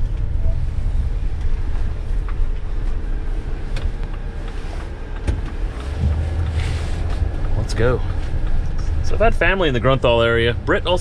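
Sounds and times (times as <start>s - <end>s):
van engine and road rumble: 0.0s - 11.0s.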